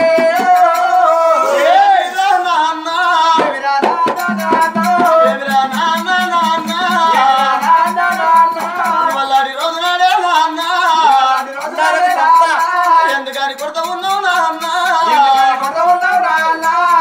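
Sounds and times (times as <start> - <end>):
man singing folk song: 0.0 - 17.0
frame drum beat: 3.4 - 17.0
small hand cymbals: 4.2 - 17.0.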